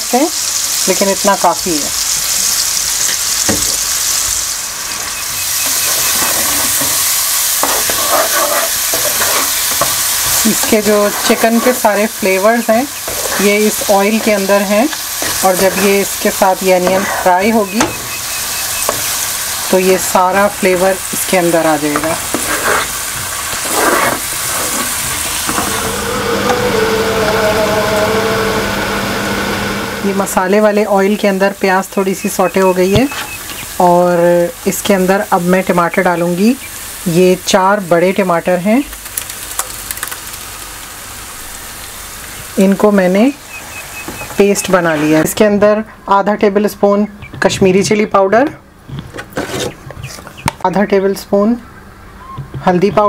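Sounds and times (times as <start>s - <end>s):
onions sizzling in a frying pan: 0.0s - 45.4s
spatula scraping a pan: 5.6s - 17.9s, 21.9s - 28.8s, 49.3s - 50.2s
steady hum with held tones: 25.5s - 32.7s.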